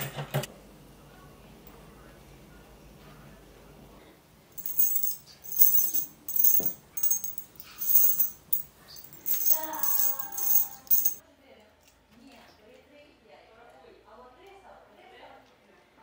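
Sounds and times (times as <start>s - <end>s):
metal rings jingling in a palm: 4.6s - 11.2s.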